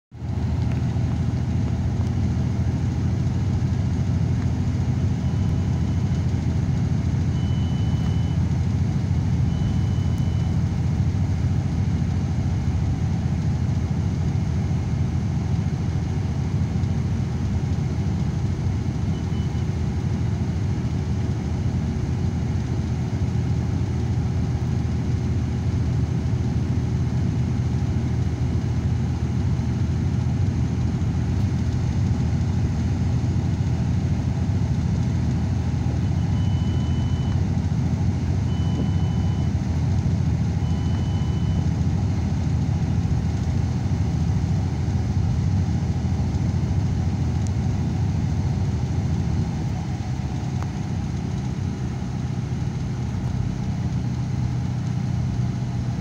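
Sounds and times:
vehicle engine and tyre rumble: 0.1s - 56.0s
faint high beeps: 7.3s - 8.5s, 9.4s - 10.7s, 19.1s - 19.8s, 36.0s - 37.5s, 38.4s - 39.6s, 40.6s - 41.8s.

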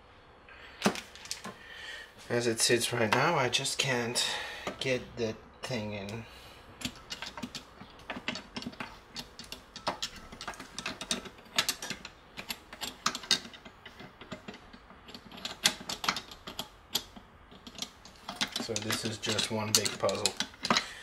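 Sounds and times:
metal gearbox parts clinking: 5.7s - 21.0s.

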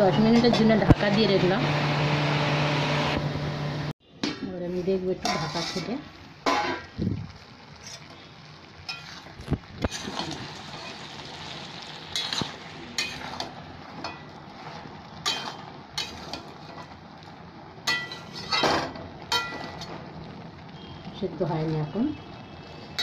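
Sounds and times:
curry hissing while cooking: 4.8s - 23.0s
metal spatula scraping a pan: 5.2s - 6.8s, 8.9s - 11.1s, 12.1s - 16.9s, 17.9s - 20.0s.

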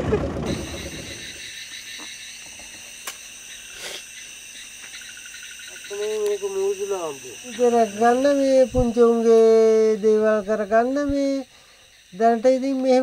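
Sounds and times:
night insects chirring: 0.4s - 13.0s
man's voice: 12.2s - 13.0s.

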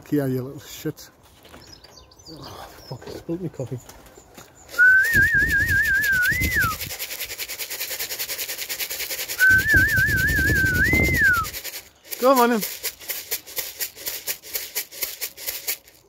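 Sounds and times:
warbling whistled calls: 4.7s - 6.9s, 9.2s - 12.6s
fast even rattle: 4.7s - 16.0s.

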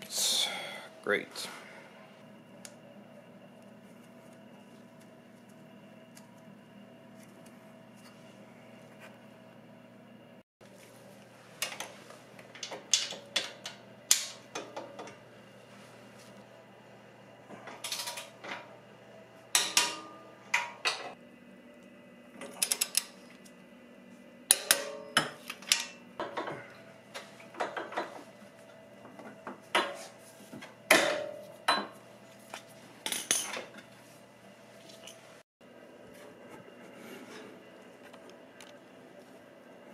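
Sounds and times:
hand tools clanking on metal: 19.5s - 21.2s.

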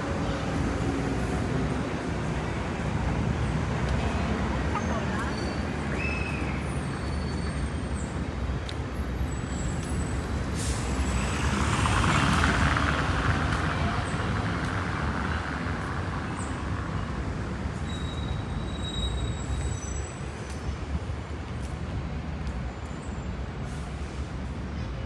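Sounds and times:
city traffic rumble: 0.0s - 25.0s
vehicle passing close: 10.4s - 15.7s.

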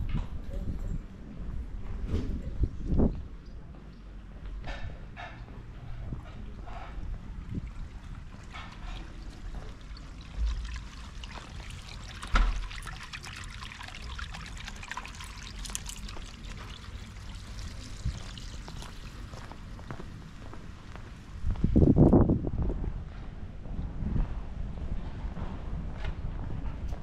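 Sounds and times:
water trickling and splashing: 6.5s - 20.8s.

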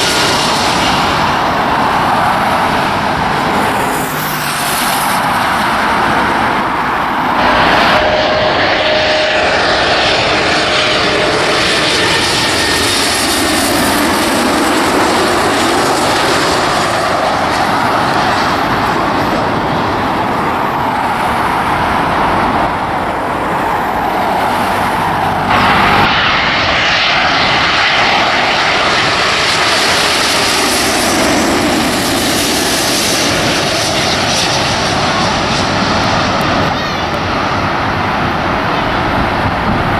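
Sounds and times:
jet airliner passing overhead: 0.0s - 39.9s.

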